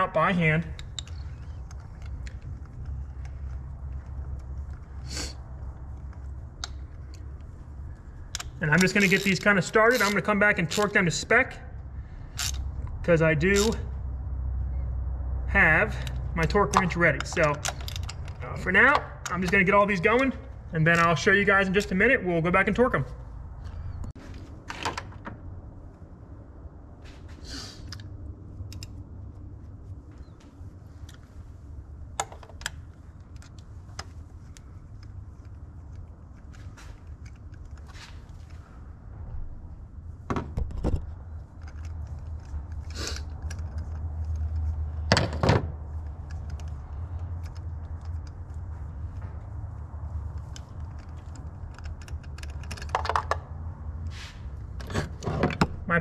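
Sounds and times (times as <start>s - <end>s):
socket tool clicks and scrape: 50.2s - 54.2s.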